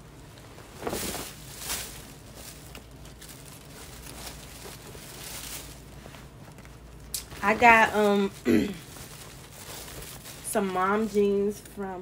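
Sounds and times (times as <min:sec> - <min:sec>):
shopping bag rustling: 0:00.2 - 0:11.9.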